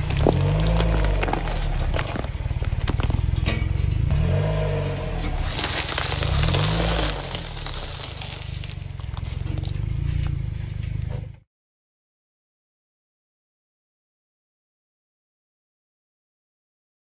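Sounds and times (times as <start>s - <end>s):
plastic and sticks crackling and crunching: 0.0s - 4.1s, 4.8s - 11.3s
car engine revving: 0.0s - 11.4s.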